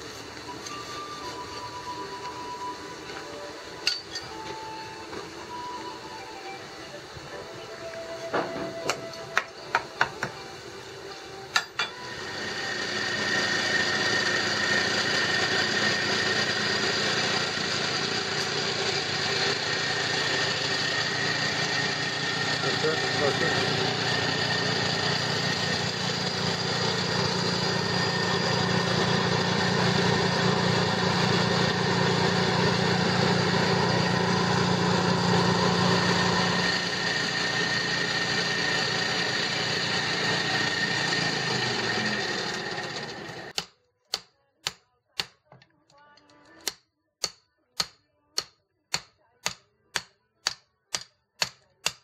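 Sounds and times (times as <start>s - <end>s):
hammer striking blade on anvil: 3.8s - 4.3s
air blower rushing hum: 12.0s - 43.5s.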